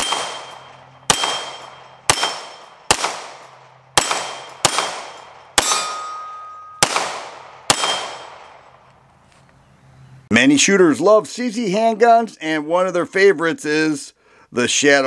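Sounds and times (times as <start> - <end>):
pistol shots with ringing tail: 0.0 - 8.9.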